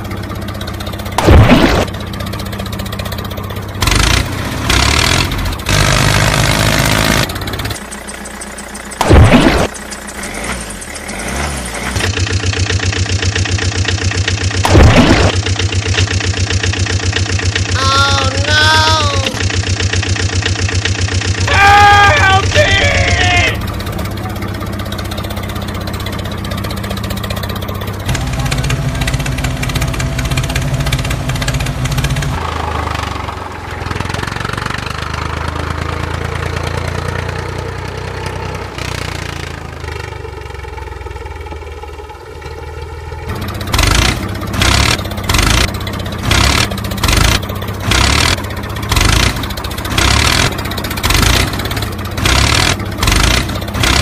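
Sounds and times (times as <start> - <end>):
regular pulsing engine chug: 0.0 - 54.0
tractor engine revving: 0.0 - 54.0.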